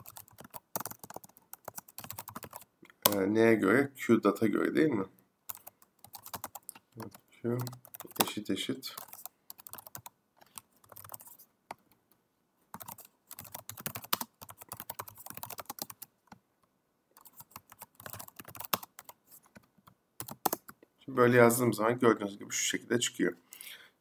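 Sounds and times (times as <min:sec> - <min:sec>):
typing on computer keyboard: 0:00.0 - 0:03.2, 0:05.5 - 0:08.4, 0:09.0 - 0:11.4, 0:12.7 - 0:16.1, 0:17.2 - 0:20.8.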